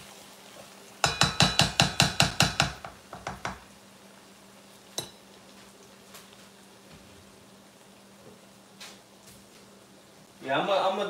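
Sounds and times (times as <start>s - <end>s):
wooden spatula knocking skillet rim: 1.0s - 3.7s.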